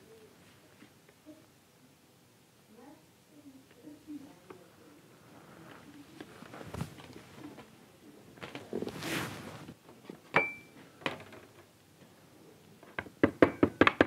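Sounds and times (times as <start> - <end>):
sharp ringing clink: 10.4 - 10.7.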